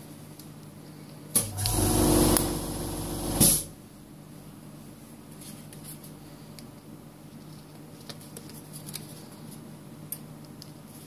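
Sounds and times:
vacuum pump humming and hissing: 1.3s - 3.8s
sharp burst of hiss: 1.8s - 3.7s.

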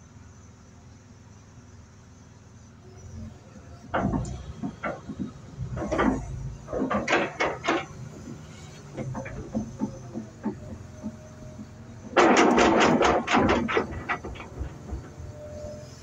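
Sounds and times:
excavator diesel engine running: 0.6s - 16.0s
rocks clattering in steel bucket: 12.2s - 15.1s.

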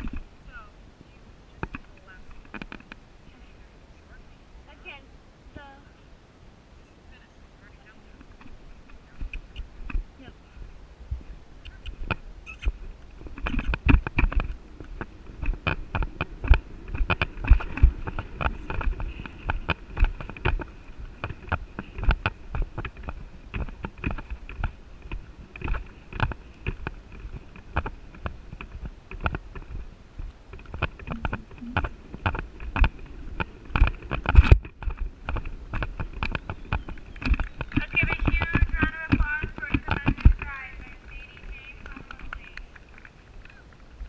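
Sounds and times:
horse hoofbeats on sand: 13.2s - 43.1s.

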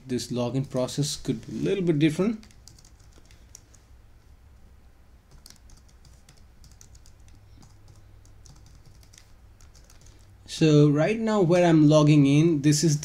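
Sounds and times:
computer keyboard keystrokes: 2.4s - 3.8s, 5.3s - 10.3s.

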